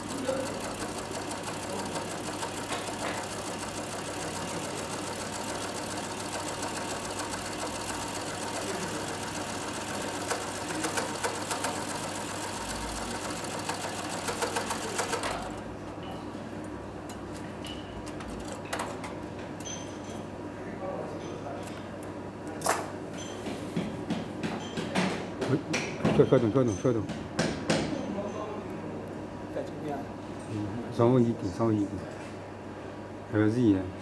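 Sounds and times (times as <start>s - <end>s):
sewing machine stitching: 0.0s - 15.6s.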